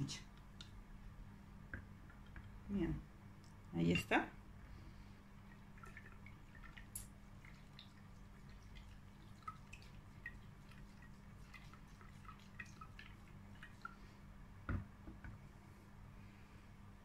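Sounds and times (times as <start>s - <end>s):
liquid sloshing in glass jar: 5.4s - 14.1s
small liquid plinks: 5.4s - 14.1s.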